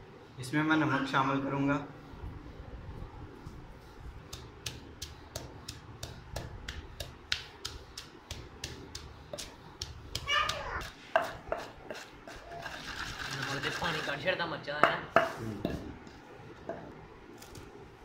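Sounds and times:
pestle pounding in a mortar: 4.2 - 14.1, 14.8 - 15.9.

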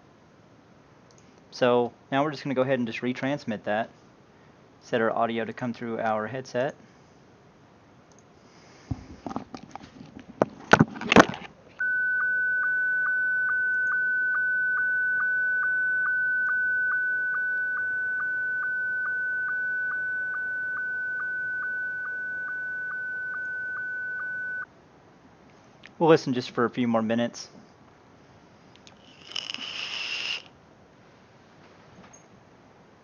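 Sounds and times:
knocks and rustles: 8.9 - 11.6
sstv transmission tones: 11.8 - 24.7.

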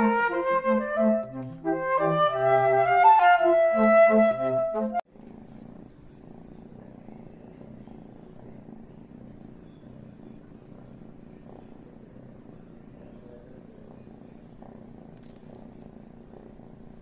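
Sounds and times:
background music melody: 0.0 - 5.0
kitten purring: 4.9 - 17.0.

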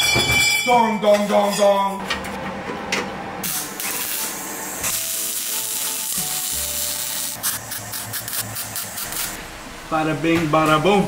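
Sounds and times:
welding arc crackling: 3.4 - 9.4.

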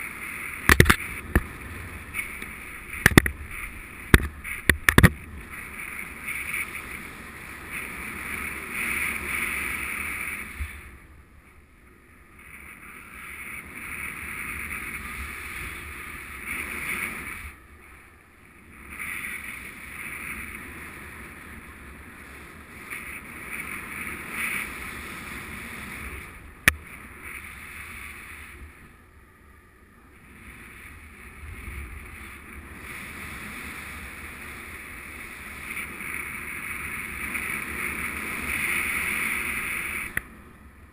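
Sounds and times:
wind rushing over microphone: 0.0 - 40.9
sharp click: 0.6 - 1.5.

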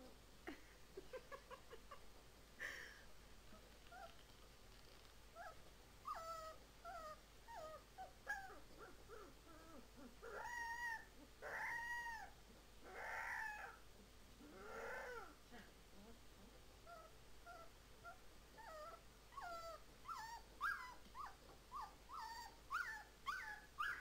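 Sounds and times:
puppy whining and yipping: 5.4 - 13.8, 14.4 - 15.4, 16.8 - 24.0
puppy howling: 9.2 - 13.8.

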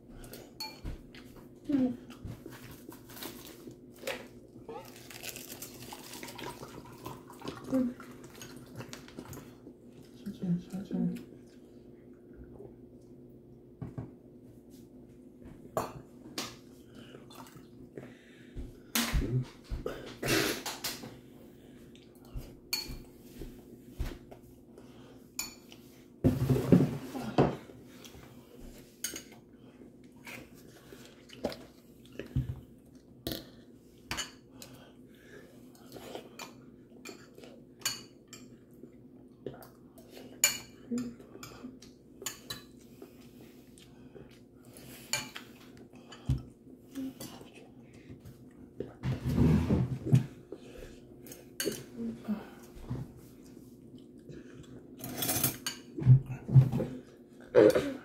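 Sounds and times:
spoon clinking on ceramic bowls: 0.6 - 0.8.

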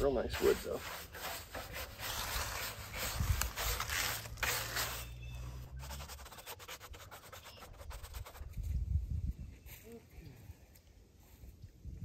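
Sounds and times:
hand brush scrubbing wood: 0.0 - 8.5.

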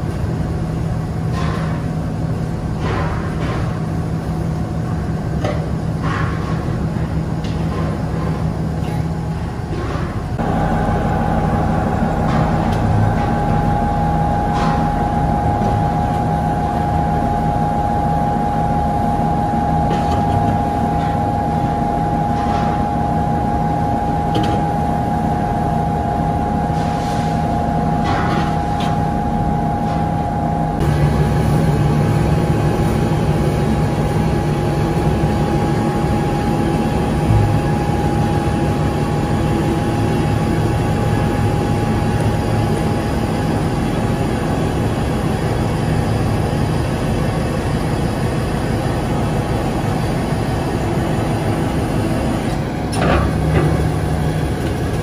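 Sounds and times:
steady machine whine: 0.0 - 55.0
hydraulic pump motor humming: 28.9 - 44.6.

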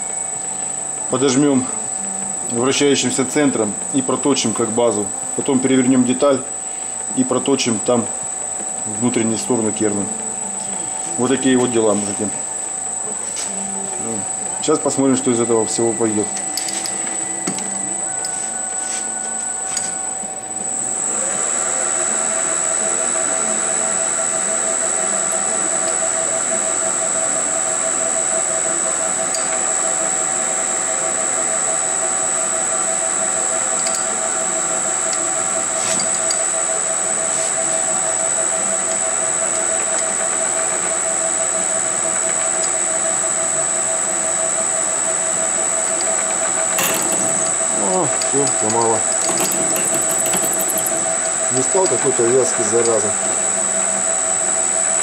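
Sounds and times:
metal lathe whine: 0.0 - 55.0
thin high tone: 8.8 - 21.0, 46.8 - 51.2.

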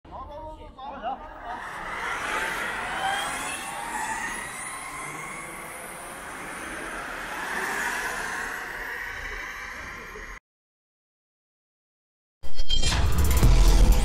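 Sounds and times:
electric motors whining: 1.2 - 10.4
rushing wheels and wind: 1.6 - 10.4.

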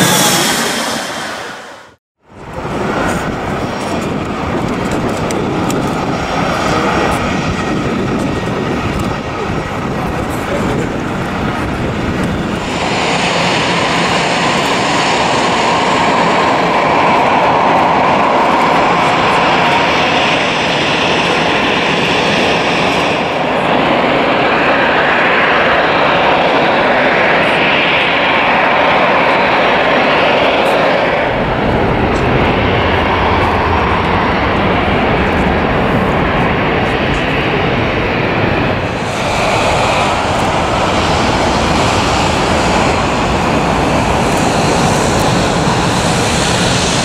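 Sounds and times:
jet aircraft roar: 0.0 - 47.0.

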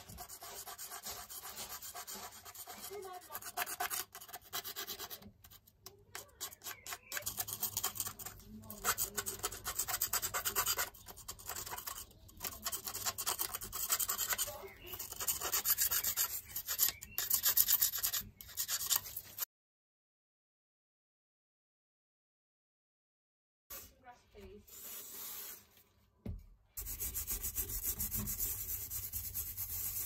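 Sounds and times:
screwdriver scraping rust: 0.0 - 19.4.

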